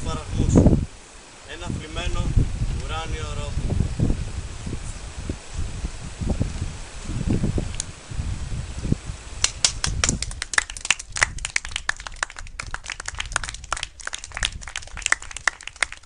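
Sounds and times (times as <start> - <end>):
wind rumble on microphone: 0.0 - 16.0
people clapping: 9.4 - 16.0.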